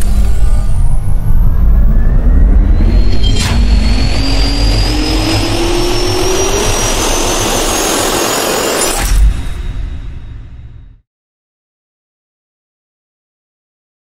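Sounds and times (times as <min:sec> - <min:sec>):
jet turbine spooling up: 0:00.0 - 0:10.7
sharp hit: 0:00.0 - 0:11.0.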